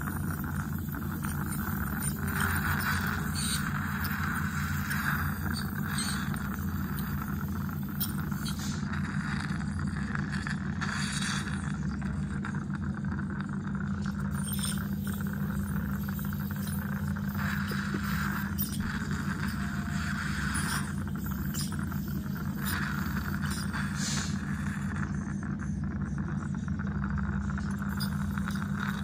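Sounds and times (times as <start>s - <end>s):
scaler tip ticking on teeth: 0.0s - 9.4s, 14.2s - 24.5s, 27.6s - 29.0s
ultrasonic scaler humming: 0.0s - 29.0s.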